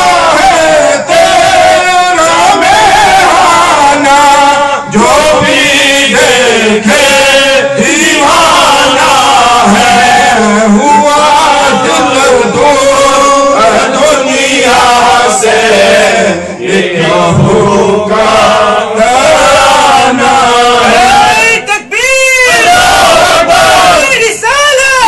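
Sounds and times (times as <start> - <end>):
man chanting: 3.2 - 14.6.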